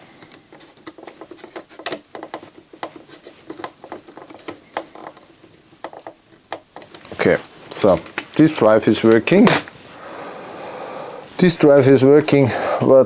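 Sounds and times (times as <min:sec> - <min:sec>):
plastic clicks and scraping: 0:00.2 - 0:09.8.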